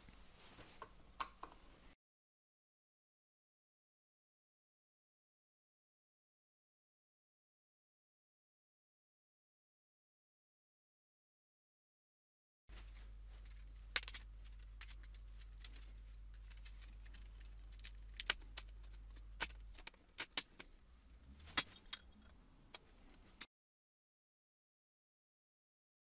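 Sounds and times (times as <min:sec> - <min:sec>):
steady low hum: 0:12.7 - 0:23.4
small hard parts clicking: 0:12.8 - 0:23.5.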